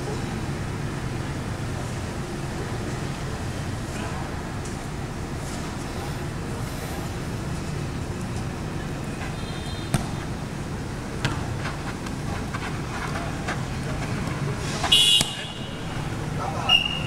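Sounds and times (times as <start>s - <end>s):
low outdoor rumble: 0.0s - 17.0s
football being kicked: 9.9s - 10.4s, 11.2s - 11.6s, 15.2s - 15.5s.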